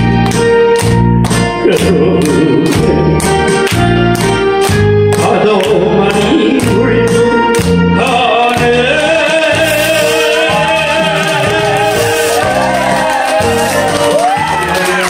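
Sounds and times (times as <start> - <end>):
karaoke backing track: 0.0 - 15.0
man singing into microphone: 1.6 - 3.1, 5.2 - 12.4.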